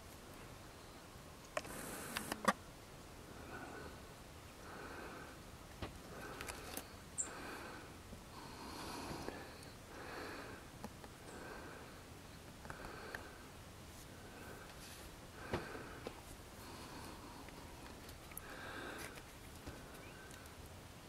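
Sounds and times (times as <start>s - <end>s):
soft breathing: 1.6s - 2.4s, 3.2s - 20.7s
faint clicks: 17.4s - 20.7s.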